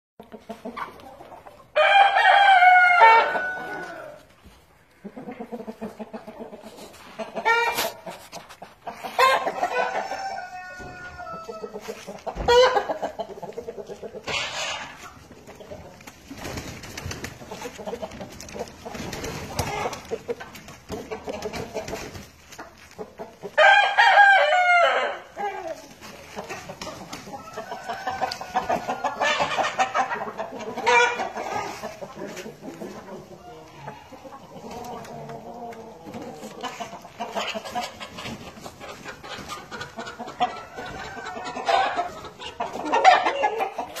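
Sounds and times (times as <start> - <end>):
chickens clucking: 0.2 - 44.0
rooster crowing: 1.8 - 4.2, 9.6 - 11.7, 23.6 - 25.2.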